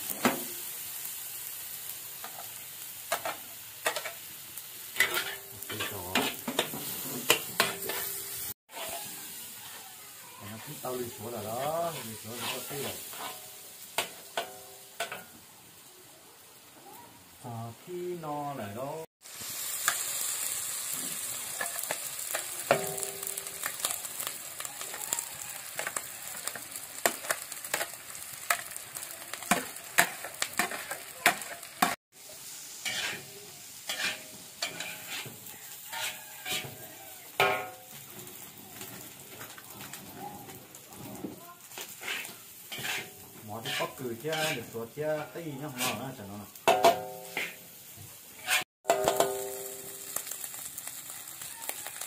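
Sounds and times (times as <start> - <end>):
rice sizzling in a wok: 0.0 - 52.0
metal spatula scraping a pan: 3.1 - 4.2, 4.8 - 15.3, 29.5 - 32.0, 32.8 - 38.5, 39.4 - 50.4.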